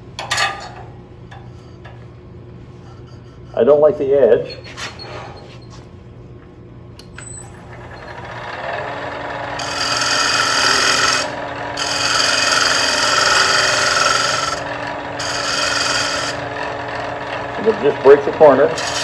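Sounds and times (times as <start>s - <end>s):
gouge scraping spinning wooden bowl: 7.6s - 19.0s.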